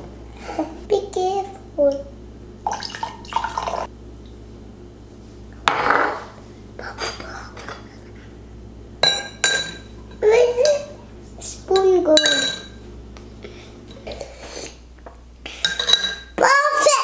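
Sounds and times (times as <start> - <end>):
water pouring between glasses: 2.6 - 3.8
glasses and spoon clinking: 9.0 - 10.2, 11.8 - 12.8, 15.6 - 16.3.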